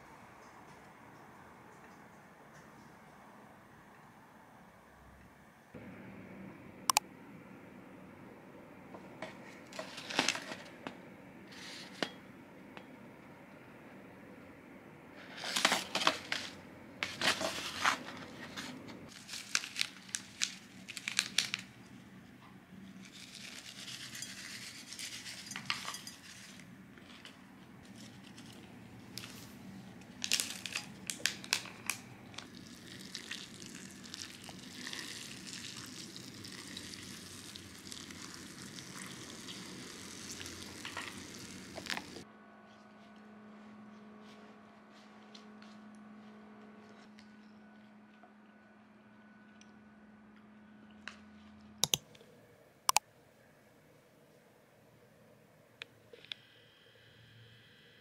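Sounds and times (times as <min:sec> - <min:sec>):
foil sachets crinkling: 0:09.6 - 0:10.8, 0:15.2 - 0:21.8, 0:23.0 - 0:26.6, 0:27.9 - 0:42.2
water pouring into bowl: 0:32.5 - 0:42.2.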